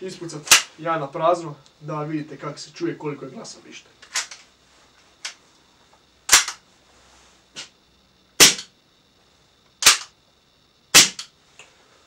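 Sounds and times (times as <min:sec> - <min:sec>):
airsoft pistol shots: 0:06.3 - 0:06.6, 0:08.4 - 0:08.7, 0:09.8 - 0:10.1, 0:10.9 - 0:11.3.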